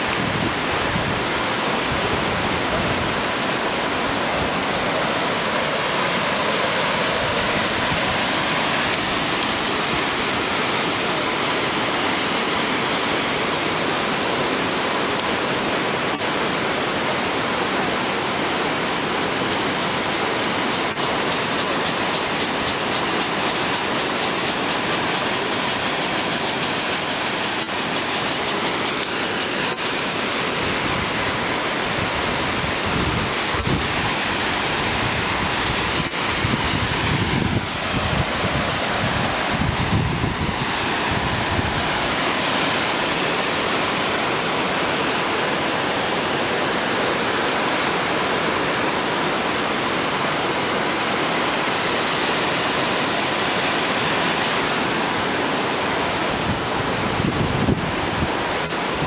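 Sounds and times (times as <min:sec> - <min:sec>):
waterfall rushing: 0:00.0 - 0:59.0
wind buffeting microphone: 0:00.1 - 0:05.5, 0:30.6 - 0:42.2, 0:54.8 - 0:59.0.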